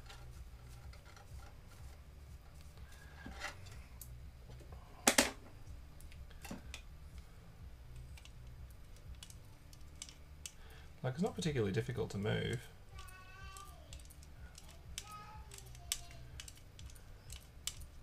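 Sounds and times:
paintbrush brushing: 0.0s - 3.2s
low steady hum: 0.0s - 18.0s.

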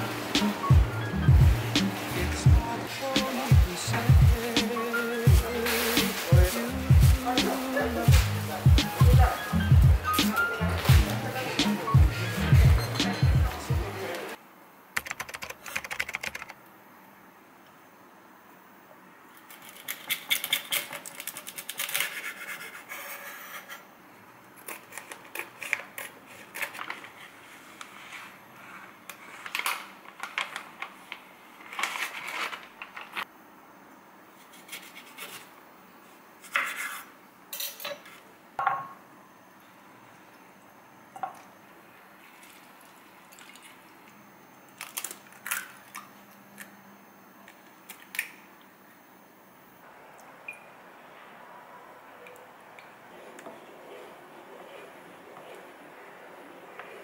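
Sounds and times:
dishes clinking: 37.6s - 39.0s.

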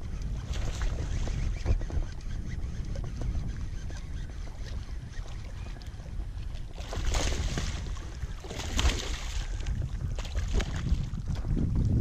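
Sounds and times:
wind rumble on microphone: 0.0s - 12.0s
fish thrashing and splashing: 6.6s - 11.1s.

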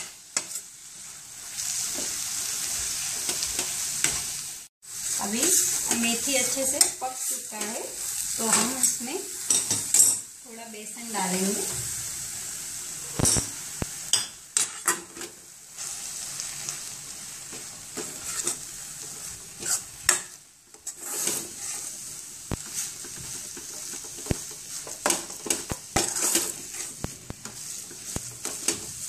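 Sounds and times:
steel spoon scraping a metal pan: 0.0s - 0.7s, 14.2s - 16.7s, 18.0s - 29.0s
oil sizzling: 0.0s - 29.0s.

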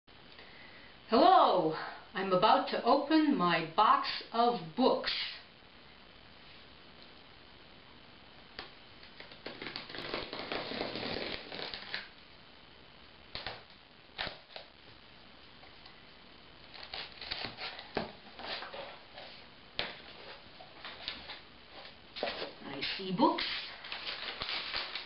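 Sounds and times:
blade scraping packing tape: 9.5s - 12.1s, 16.7s - 18.7s.

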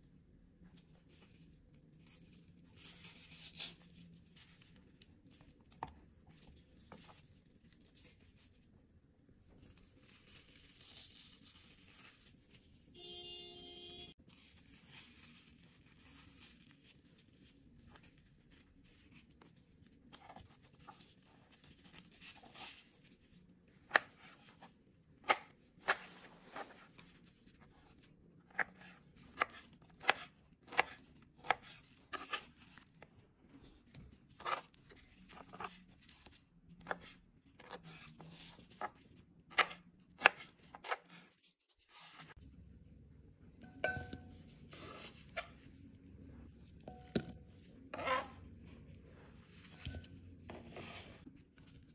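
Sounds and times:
knife slicing mango: 28.5s - 32.8s.

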